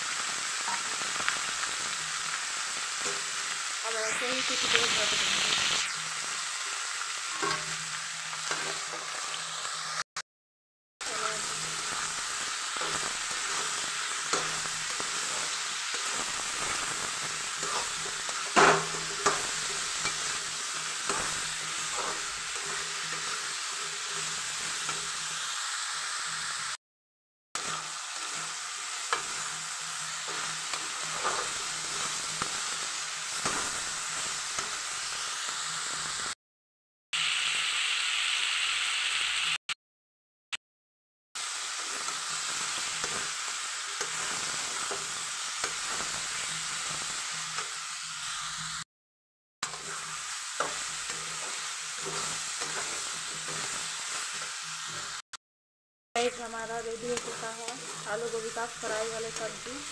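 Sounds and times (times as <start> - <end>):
vegetables sizzling in oil: 0.0 - 10.1, 11.0 - 26.8, 27.6 - 36.4, 37.2 - 39.6, 41.4 - 48.9, 49.6 - 55.3, 56.2 - 59.9
metal spatula scraping a pan: 7.2 - 9.3, 11.2 - 25.2, 27.6 - 34.8, 49.6 - 55.2, 56.9 - 59.9.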